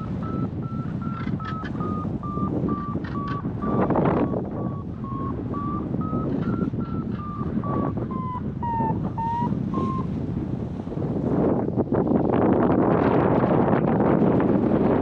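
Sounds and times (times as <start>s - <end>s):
variometer beeping: 0.0s - 10.1s
wind on microphone: 0.0s - 15.0s.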